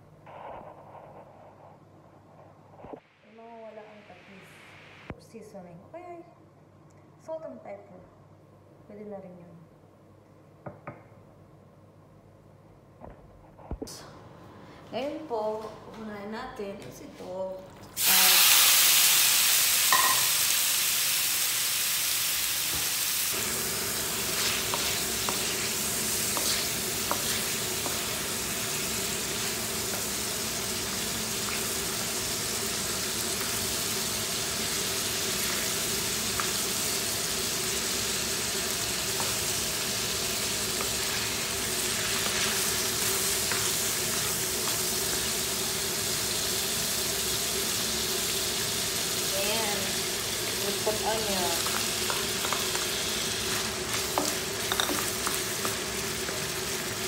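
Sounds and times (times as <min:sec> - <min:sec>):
meat sizzling in a pan: 0:18.0 - 0:57.0
wooden spatula tapping and scraping: 0:24.4 - 0:25.6, 0:26.3 - 0:28.1, 0:51.6 - 0:52.9, 0:53.9 - 0:56.5.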